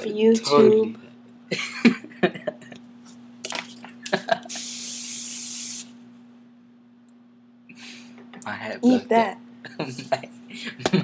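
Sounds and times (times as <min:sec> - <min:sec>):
aerosol can spraying: 0:04.5 - 0:05.9.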